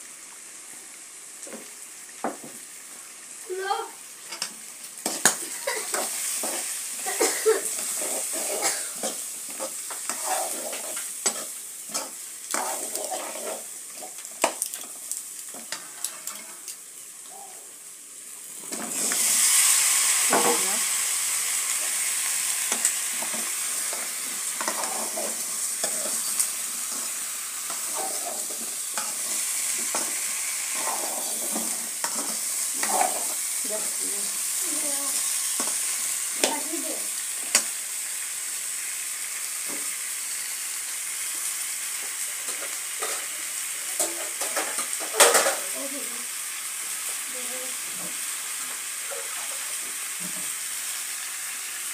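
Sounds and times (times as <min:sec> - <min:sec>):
curry sizzling in a pan: 0:00.0 - 0:51.9
metal spoon scraping a pan: 0:07.7 - 0:14.9, 0:15.5 - 0:16.8, 0:22.7 - 0:33.5, 0:42.4 - 0:45.6.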